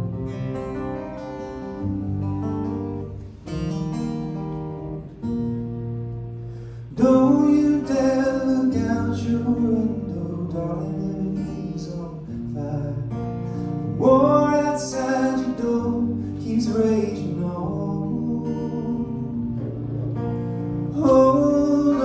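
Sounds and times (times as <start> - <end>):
acoustic guitar chords: 0.0 - 22.0
man singing: 6.9 - 19.9, 20.9 - 22.0.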